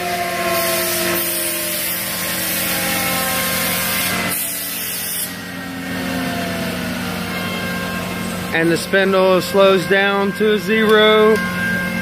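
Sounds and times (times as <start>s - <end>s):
router spindle whine spinning down: 0.0s - 12.0s
machine noise hiss: 0.5s - 5.4s.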